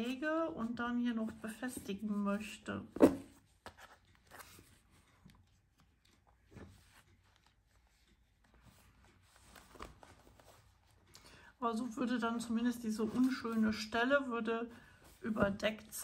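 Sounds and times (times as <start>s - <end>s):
paper rustling: 3.0s - 11.2s, 12.5s - 13.9s.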